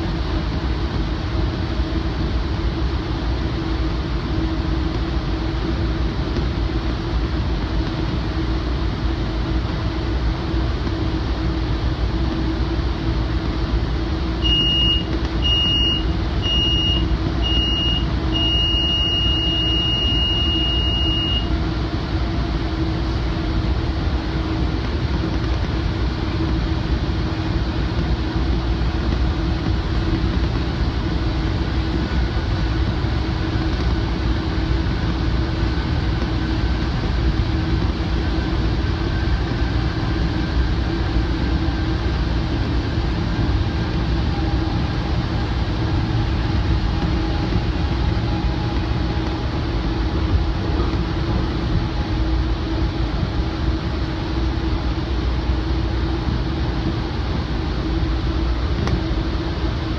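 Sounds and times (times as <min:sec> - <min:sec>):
train rumble: 0:00.0 - 0:59.9
high electronic alarm beeps: 0:14.4 - 0:21.5.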